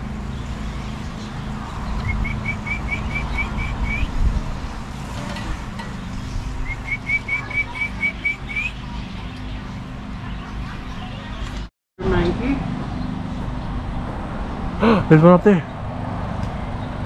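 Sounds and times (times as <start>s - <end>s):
songbird whistling: 2.0s - 4.2s, 6.6s - 8.8s.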